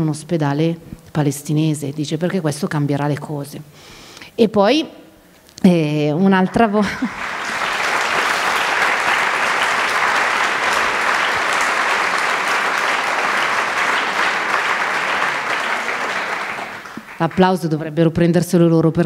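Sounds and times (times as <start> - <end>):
audience applauding: 6.4 - 17.7.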